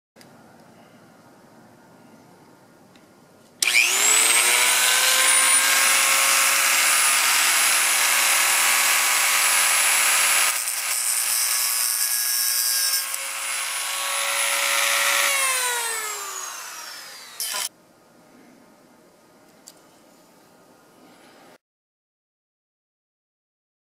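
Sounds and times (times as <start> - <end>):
rotary tool whining: 3.6 - 17.7
rotary tool grinding plastic: 12.9 - 17.7.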